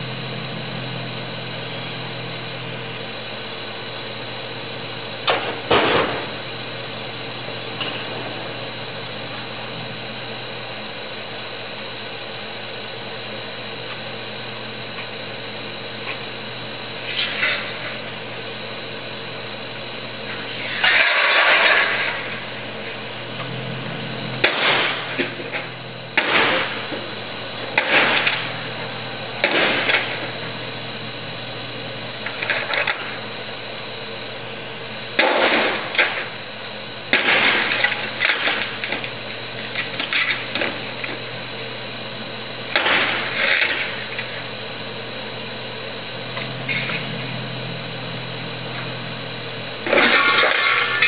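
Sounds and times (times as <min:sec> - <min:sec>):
high-pitched whine: 0:00.0 - 0:51.0
low hum: 0:00.0 - 0:51.0
loud bangs of something breaking: 0:35.2 - 0:36.2, 0:37.1 - 0:38.6.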